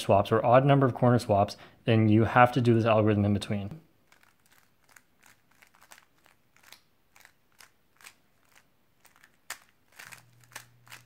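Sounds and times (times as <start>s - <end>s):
puzzle cube layers clicking: 4.1s - 11.0s
faint low hum: 5.7s - 11.0s.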